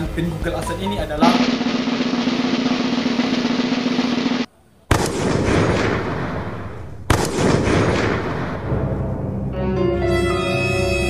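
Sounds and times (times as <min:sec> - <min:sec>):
snare drum roll: 0:01.2 - 0:04.5
explosion-like booms: 0:01.2 - 0:09.0.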